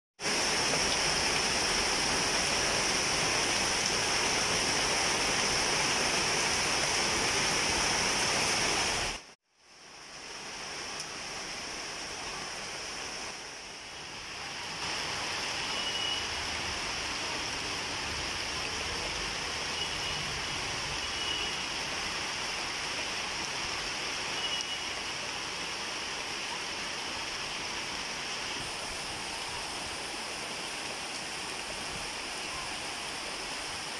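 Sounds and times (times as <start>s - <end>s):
rain falling on leaves: 0.2s - 33.9s.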